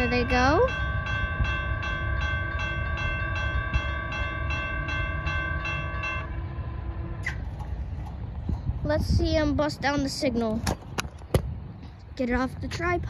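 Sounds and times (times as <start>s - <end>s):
railroad crossing bell dinging: 0.0s - 8.0s
steady low rumble: 0.0s - 13.0s.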